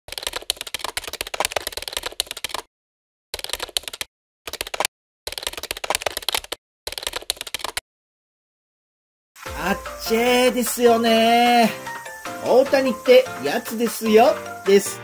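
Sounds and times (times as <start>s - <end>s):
rapid keystroke clicks: 0.1s - 2.7s, 3.4s - 7.8s.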